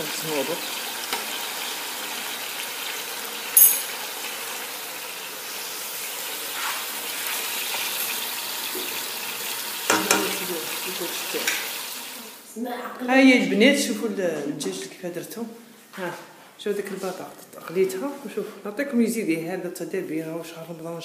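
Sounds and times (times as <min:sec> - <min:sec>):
potatoes sizzling in oil: 0:00.0 - 0:12.5.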